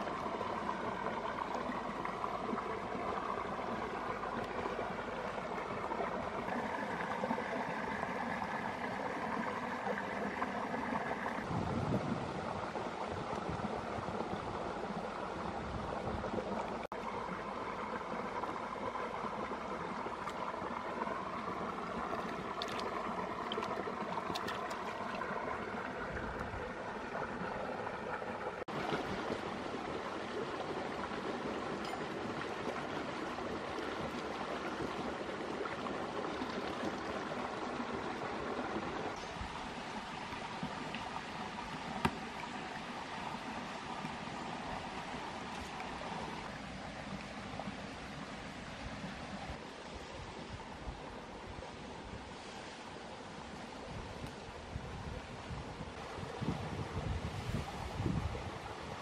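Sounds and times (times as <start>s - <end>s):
rocky stream flowing: 0.0s - 59.0s
water splashing: 12.7s - 48.6s.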